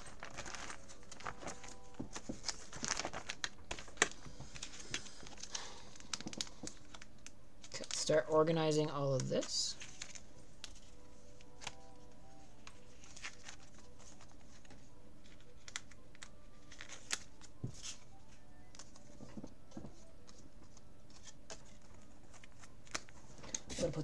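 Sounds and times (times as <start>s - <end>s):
plastic sleeves rustling and crinkling: 0.0s - 24.0s.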